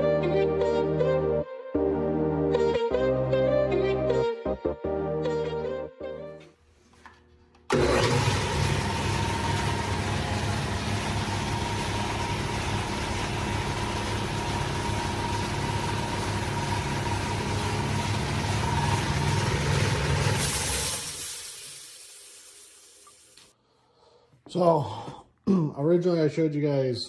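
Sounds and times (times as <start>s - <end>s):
air compressors running: 7.7s - 23.5s
sharp hiss of air: 20.3s - 23.6s.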